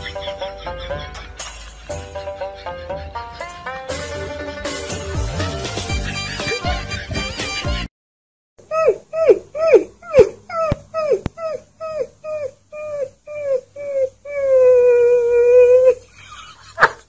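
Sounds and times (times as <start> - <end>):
puppy howling: 8.7 - 16.0.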